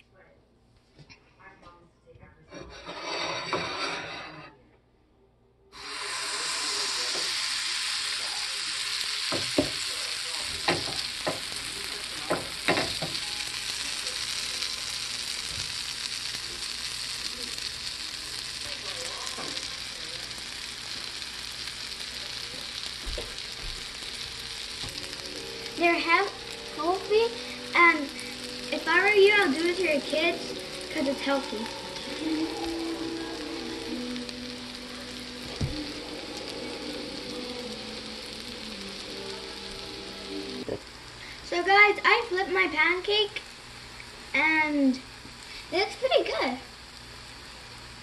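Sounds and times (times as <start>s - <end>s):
batter sizzling in a frying pan: 5.8s - 48.0s.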